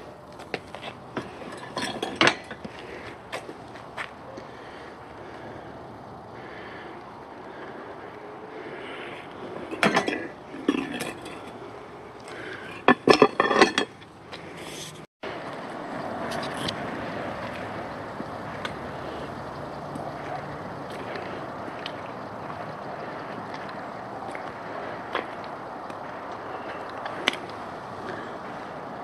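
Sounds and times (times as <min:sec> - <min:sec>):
steady rushing noise: 0:15.2 - 0:29.0.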